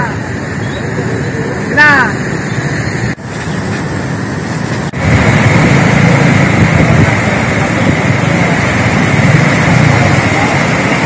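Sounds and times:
roar of fast river water: 3.9s - 11.0s.

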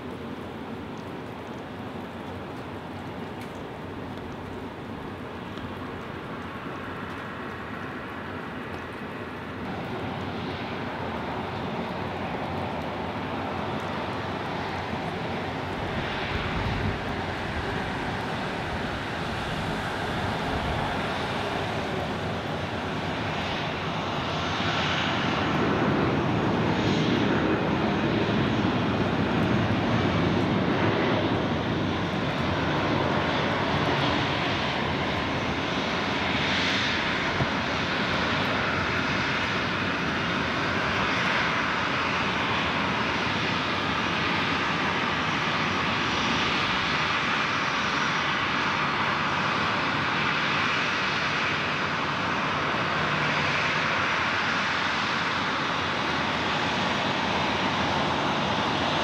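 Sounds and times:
jet engines landing: 0.0s - 59.0s.

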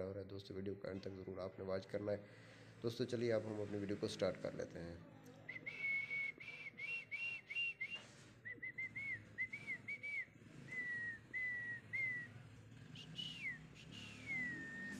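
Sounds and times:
person whistling a tune: 5.5s - 12.3s, 13.0s - 14.9s.

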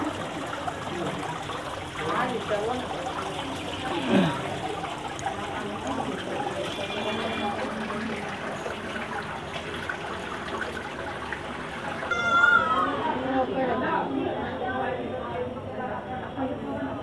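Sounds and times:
small waterfall splashing: 0.0s - 12.1s.

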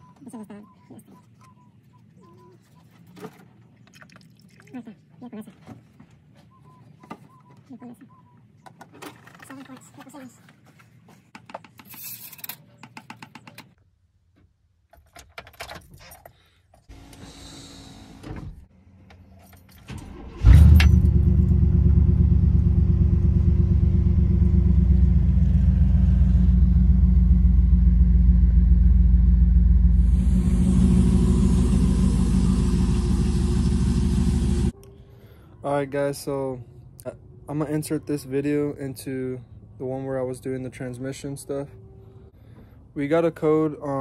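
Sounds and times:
truck engine starting and idling: 19.7s - 34.8s.

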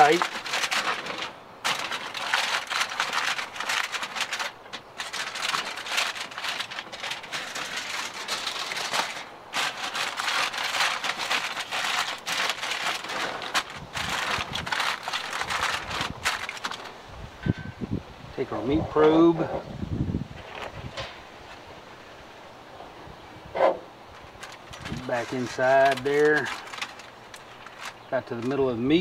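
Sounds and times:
aluminum foil crinkling: 0.0s - 17.0s, 24.1s - 29.0s.

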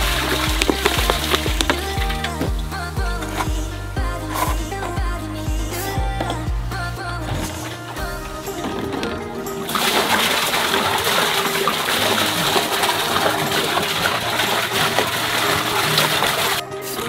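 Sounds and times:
soda pouring into container: 9.7s - 16.6s.

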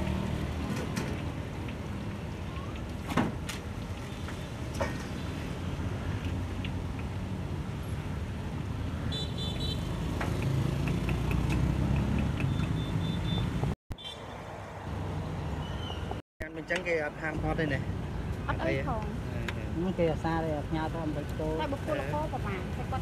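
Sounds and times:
motorbikes and cars passing: 0.0s - 2.4s, 4.0s - 23.0s
car horn beep: 12.5s - 14.2s.

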